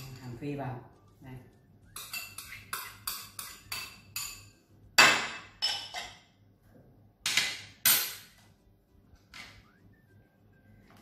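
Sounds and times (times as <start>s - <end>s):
ceramic bowls clinking: 1.8s - 6.4s.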